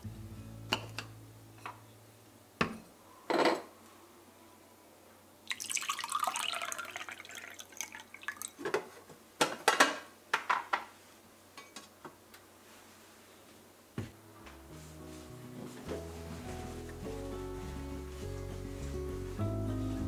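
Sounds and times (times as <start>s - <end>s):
tea pouring over ice: 5.5s - 8.6s.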